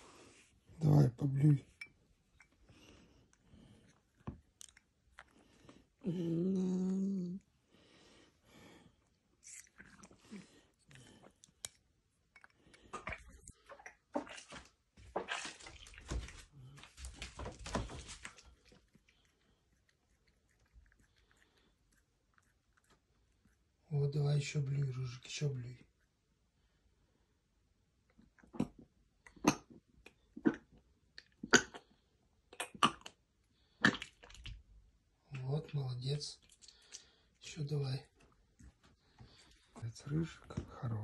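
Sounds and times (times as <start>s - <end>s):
cat retching and gagging: 9.4s - 11.5s, 12.8s - 14.5s, 28.3s - 33.2s, 33.8s - 34.6s
liquid splashing: 12.8s - 18.8s
cat retching: 31.4s - 31.9s, 32.5s - 33.2s.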